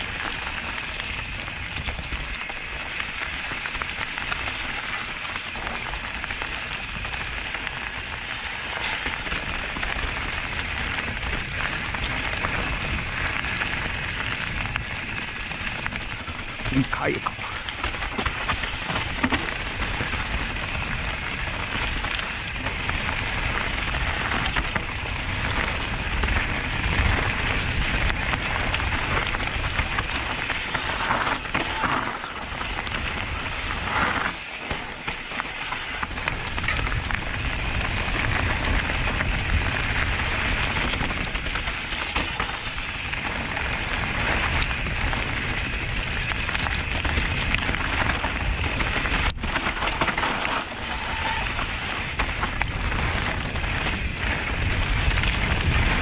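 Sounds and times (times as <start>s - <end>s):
bike tyres crackling through leaves: 0.0s - 56.0s
wind rumbling on microphone: 0.0s - 56.0s.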